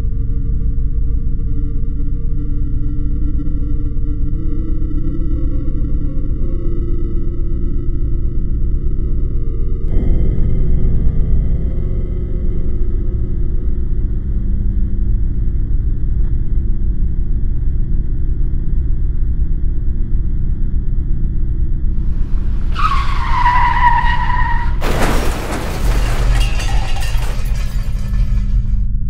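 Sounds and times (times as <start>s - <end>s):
car crash impact: 22.0s - 28.8s
tyre screech: 22.0s - 28.8s.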